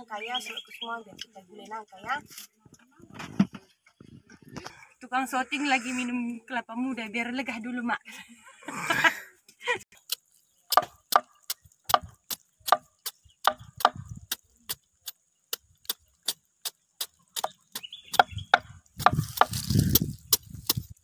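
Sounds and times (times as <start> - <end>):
machete chopping fruit rind: 10.0 - 21.0.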